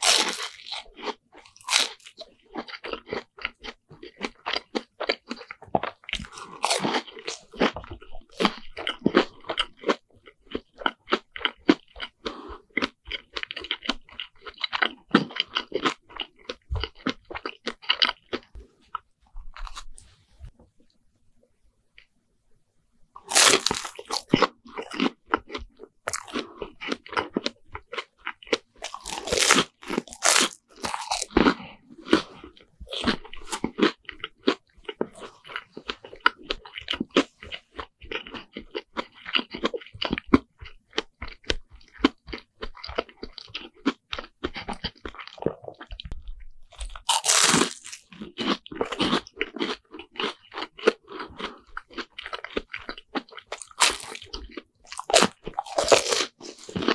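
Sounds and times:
chewing: 0.0s - 20.1s, 23.2s - 56.9s
crunchy bites into fried bread: 23.2s - 32.2s, 36.1s - 56.9s.

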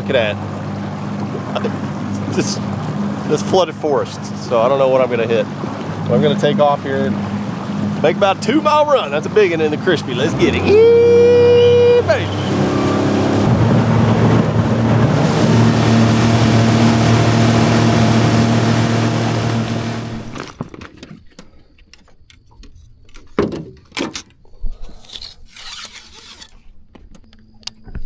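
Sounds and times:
rush of wind and water: 0.0s - 20.5s
outboard motor running: 0.0s - 20.7s.

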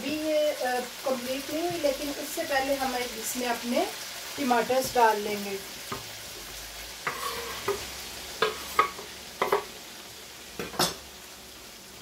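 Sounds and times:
chicken sizzling in a pan: 0.0s - 12.0s
spatula knocking and scraping pan: 5.9s - 9.8s.

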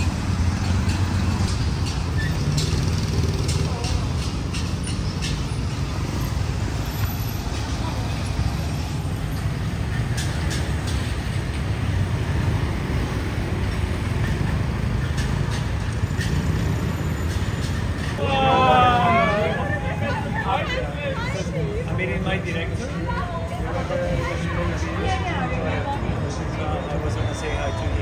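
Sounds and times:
street traffic rumble: 0.0s - 28.0s
people's voices: 18.2s - 28.0s.

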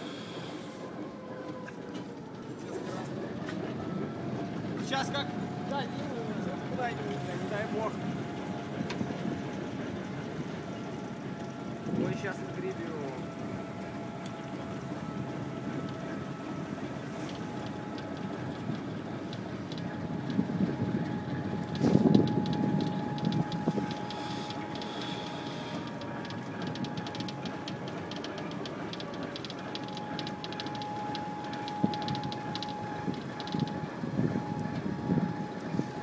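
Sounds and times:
diesel locomotive running: 0.0s - 36.0s
steady whine: 0.0s - 36.0s
fast crackle: 21.7s - 33.8s.

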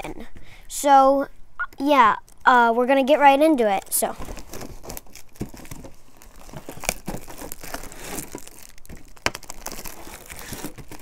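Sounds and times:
plastic shrink-wrap crinkling and tearing: 4.1s - 11.0s.

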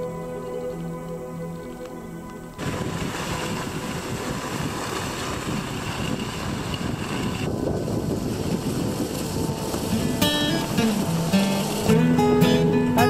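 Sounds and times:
faint music: 0.0s - 3.9s, 8.3s - 13.0s
wind buffeting microphone: 2.6s - 13.0s.

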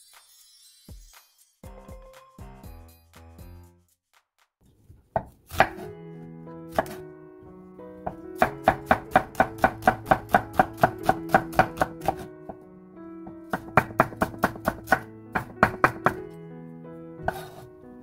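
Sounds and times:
knife chopping on wooden board: 5.2s - 5.9s, 6.7s - 7.0s, 8.0s - 12.6s, 13.3s - 16.2s, 17.2s - 17.6s.

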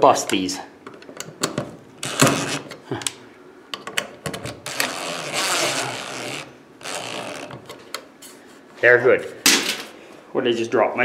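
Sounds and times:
cordless drill driving screws: 4.7s - 7.6s.

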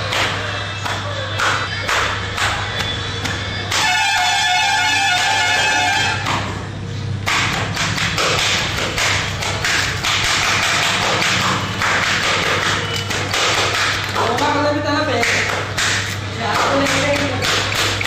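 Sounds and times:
music: 0.0s - 6.6s.

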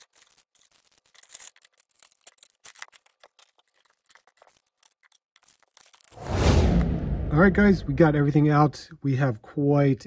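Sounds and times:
plastic bags crinkling: 0.0s - 6.2s.

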